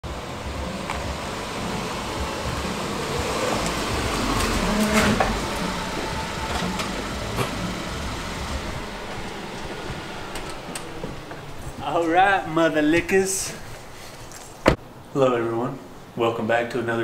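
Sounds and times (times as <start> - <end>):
car engine running: 0.0 - 12.0
tyres rolling on concrete: 0.0 - 14.8.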